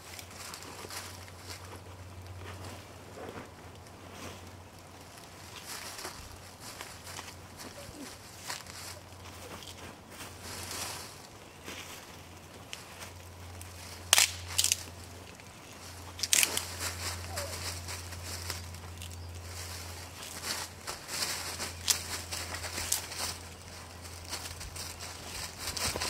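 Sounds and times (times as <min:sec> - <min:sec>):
campfire crackling: 0:00.0 - 0:26.0
sharp snaps: 0:14.1 - 0:14.9.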